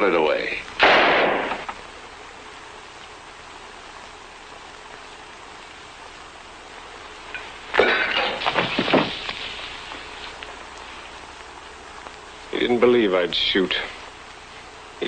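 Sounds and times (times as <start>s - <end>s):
television soundtrack hiss: 0.0s - 15.0s
revolver shot: 0.8s - 1.7s
loud burst: 0.8s - 1.8s.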